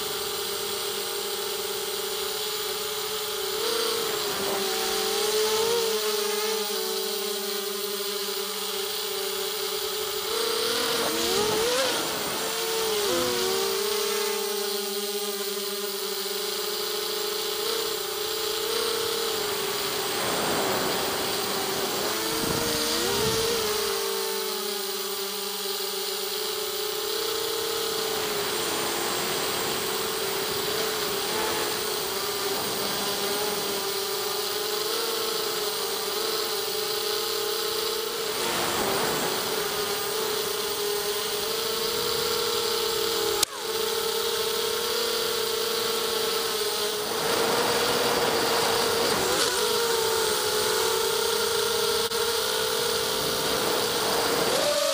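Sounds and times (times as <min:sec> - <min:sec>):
drone propellers whining: 0:09.7 - 0:16.7, 0:17.4 - 0:25.5.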